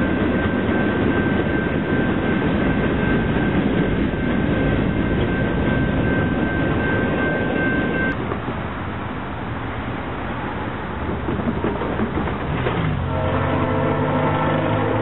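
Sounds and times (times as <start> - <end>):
thin steady whine: 0.0 - 8.2
distant diesel locomotive rumble: 0.0 - 15.0.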